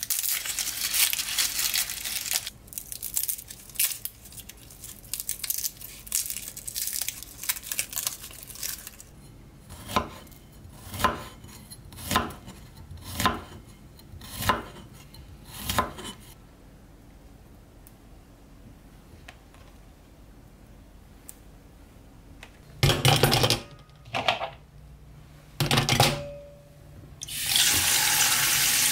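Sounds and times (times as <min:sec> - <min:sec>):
garlic skin crackling: 0:00.0 - 0:09.1.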